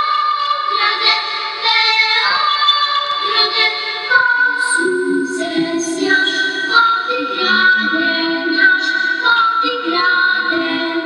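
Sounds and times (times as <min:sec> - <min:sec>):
woman singing long notes: 0:04.6 - 0:11.0.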